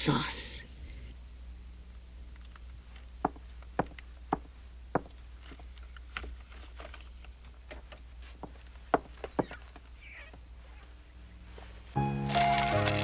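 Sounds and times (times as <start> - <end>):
steady low hum: 0.0 - 12.0
footsteps: 2.9 - 13.0
scattered taps and knocks: 3.2 - 5.1.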